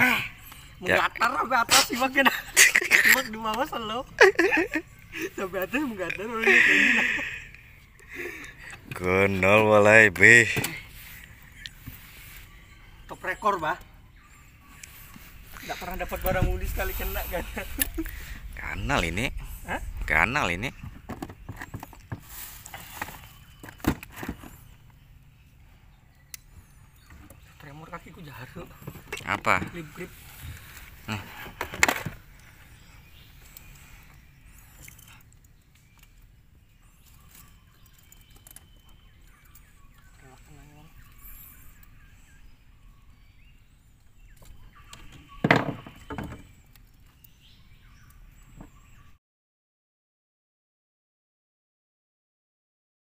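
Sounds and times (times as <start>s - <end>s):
knocks and thumps in boat: 20.8s - 22.3s, 45.0s - 46.5s
fishing gear clicks and knocks: 37.0s - 40.2s.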